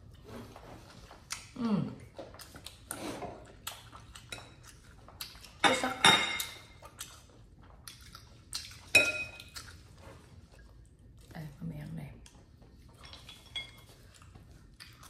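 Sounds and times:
tableware clinking on ceramic: 0:05.6 - 0:06.6, 0:09.0 - 0:09.4.

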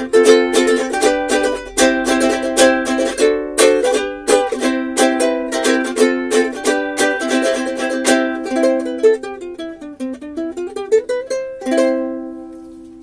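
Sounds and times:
ukulele strummed and picked: 0:00.0 - 0:13.0.

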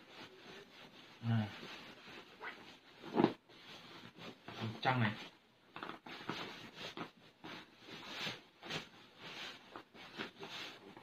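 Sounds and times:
pillowcase rustling: 0:00.0 - 0:11.0.

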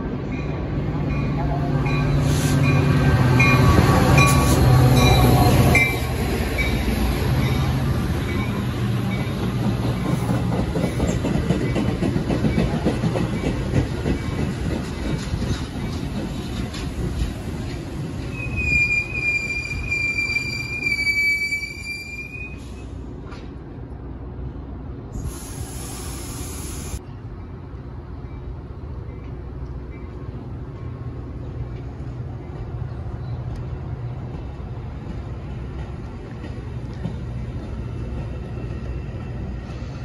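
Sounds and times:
train rumbling on rails: 0:00.0 - 0:40.0
train wheels squealing: 0:18.2 - 0:23.0
sharp hiss: 0:25.2 - 0:27.0.

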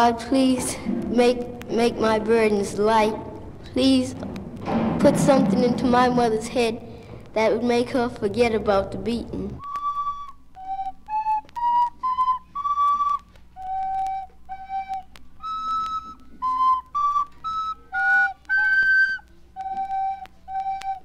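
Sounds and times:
flute-like wind instrument tune: 0:09.6 - 0:21.0.

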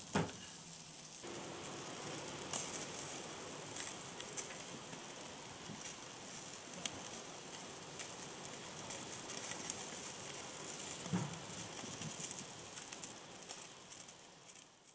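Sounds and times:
meat sizzling on charcoal grill: 0:00.0 - 0:14.9.

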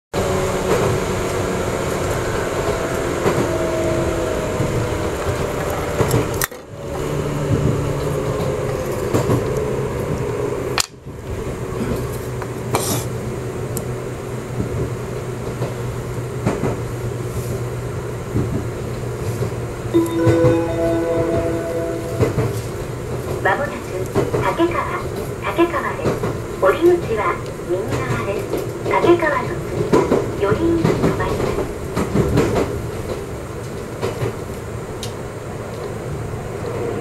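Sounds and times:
train wheels rumbling on rail: 0:00.1 - 0:37.0
train motor hum: 0:00.2 - 0:37.0
held tone: 0:19.9 - 0:23.0.

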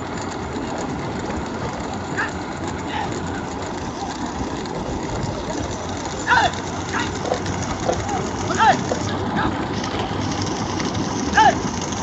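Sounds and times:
carts rumbling on road: 0:00.0 - 0:12.0
faint shouts: 0:06.2 - 0:07.2, 0:08.4 - 0:09.6, 0:11.3 - 0:11.6.

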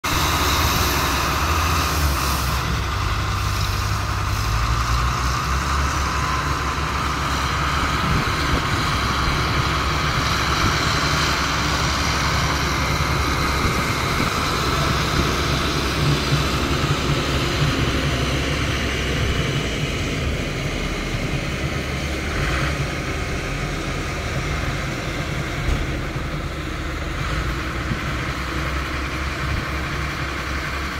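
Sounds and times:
diesel engines running: 0:00.0 - 0:30.9.

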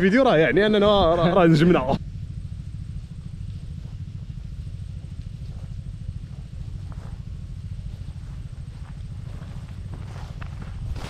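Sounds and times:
small engine puttering: 0:00.0 - 0:11.0.

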